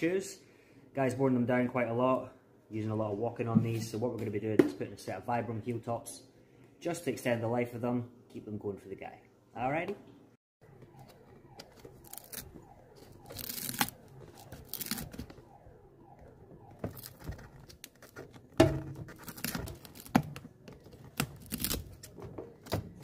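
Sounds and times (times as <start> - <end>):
heel piece tearing and cracking: 13.2 - 15.3, 19.0 - 22.2.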